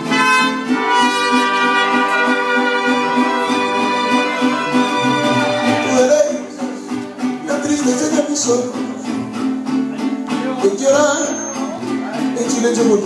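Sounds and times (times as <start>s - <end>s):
guitars strumming: 0.0s - 13.0s
mariachi band playing: 0.0s - 13.0s.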